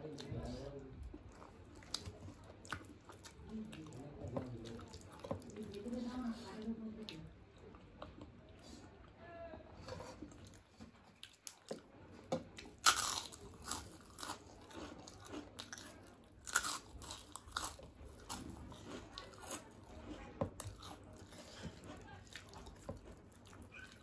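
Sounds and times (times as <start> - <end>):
chewing: 0.0 - 9.2, 9.9 - 24.0
crunching fried crisps: 12.6 - 19.8.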